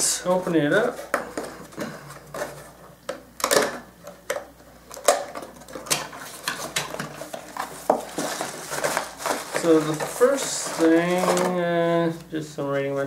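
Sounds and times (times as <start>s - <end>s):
cardboard box being opened: 7.2s - 11.6s.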